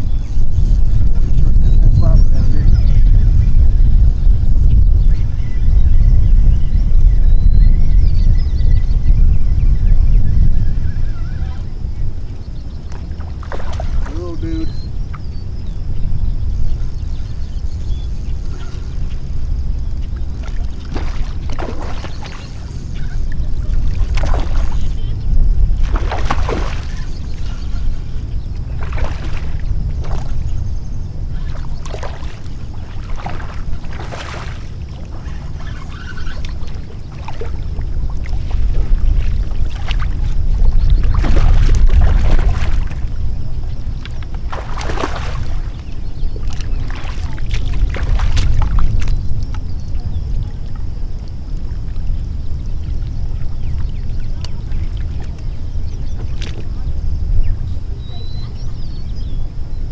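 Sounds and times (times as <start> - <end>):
steady low rumble: 0.0 - 59.9
wind buffeting microphone: 0.0 - 59.9
fish splashing and thrashing: 12.9 - 14.6, 20.0 - 30.6, 31.3 - 49.6.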